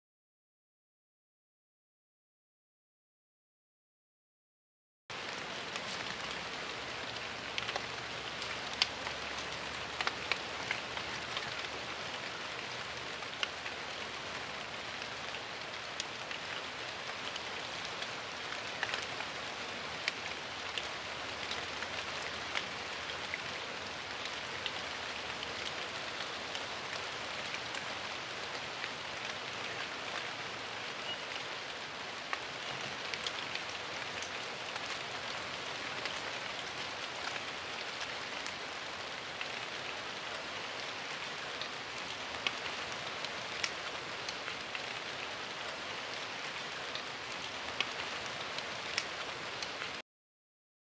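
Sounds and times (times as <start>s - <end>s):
steady rain: 5.1s - 50.0s
raindrops clicking: 5.2s - 13.9s, 15.3s - 19.4s, 32.2s - 35.4s, 40.3s - 45.8s, 46.8s - 50.0s.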